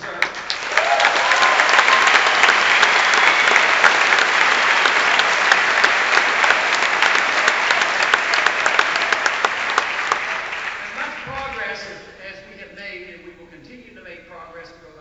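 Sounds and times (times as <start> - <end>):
audience applauding: 0.0 - 12.0
person whooping: 0.7 - 4.2.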